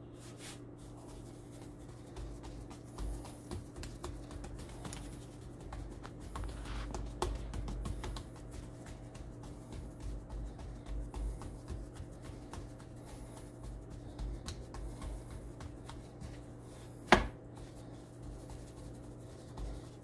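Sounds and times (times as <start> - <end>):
fingertips patting dough: 0.3 - 20.0.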